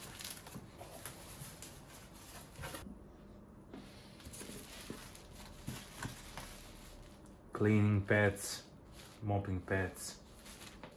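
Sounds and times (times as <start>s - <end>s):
packaging rustling: 0.0s - 2.8s, 4.3s - 7.1s.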